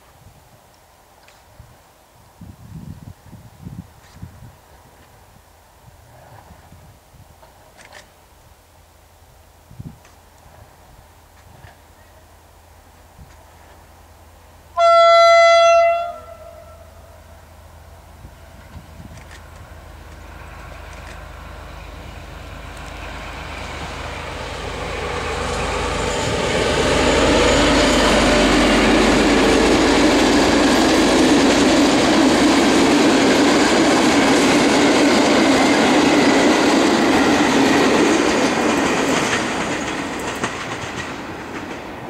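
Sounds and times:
diesel locomotive engine: 10.4 - 42.0
train wheels rumbling on rails: 15.6 - 42.0.

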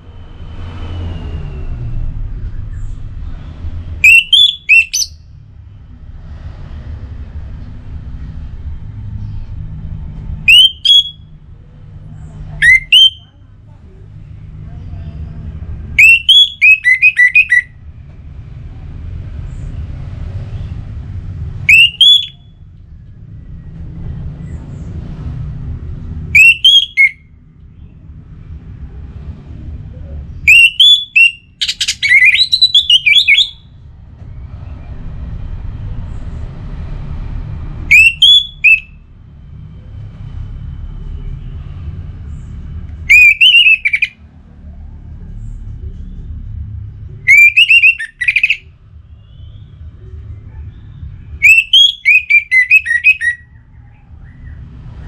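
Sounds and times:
low rumble: 0.0 - 4.0, 33.5 - 37.9
thrush singing whistled notes: 4.0 - 5.3, 10.4 - 11.3, 12.6 - 13.3, 16.0 - 17.8, 21.6 - 22.6, 26.3 - 27.9, 30.5 - 33.8, 37.9 - 39.1, 43.0 - 44.2, 47.3 - 49.7, 51.3 - 54.6.

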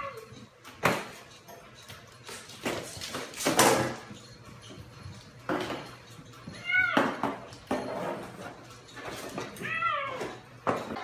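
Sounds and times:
cat meowing: 9.6 - 10.4.

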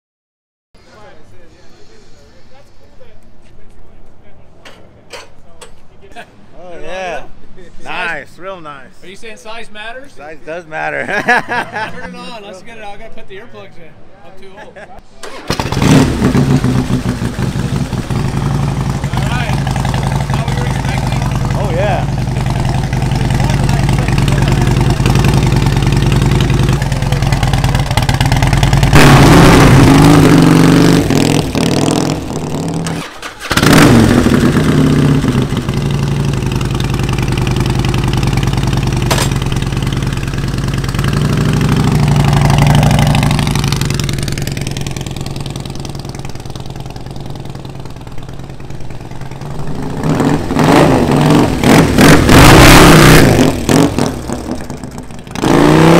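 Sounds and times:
motorcycle engine revving and passing: 15.2 - 55.9.

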